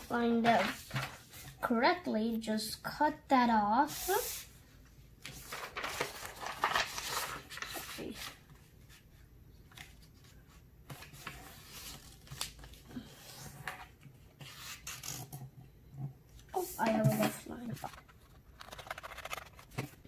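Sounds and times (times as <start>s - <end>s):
paper rustling while folded: 0.0s - 1.8s, 5.2s - 15.3s, 16.5s - 20.0s.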